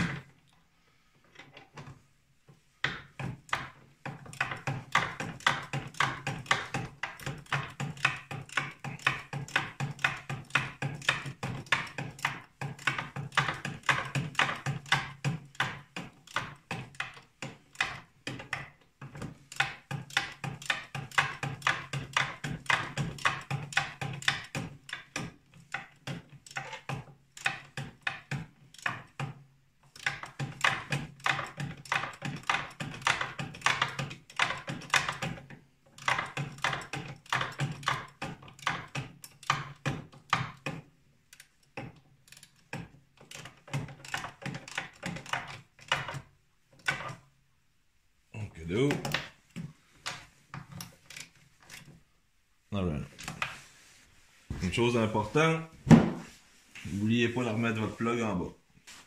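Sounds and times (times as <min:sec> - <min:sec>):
rapid metallic clicking: 0:03.1 - 0:18.7.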